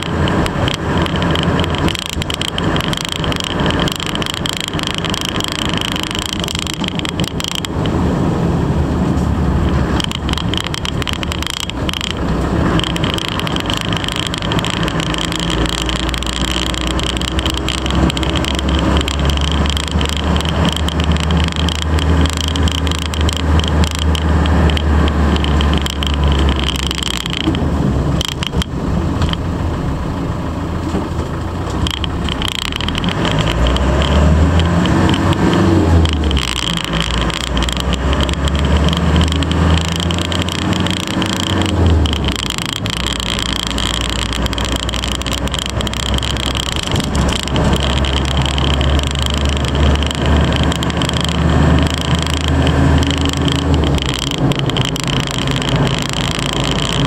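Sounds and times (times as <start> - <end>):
diesel engine while driving: 0.0 - 57.0
road noise: 0.0 - 57.0.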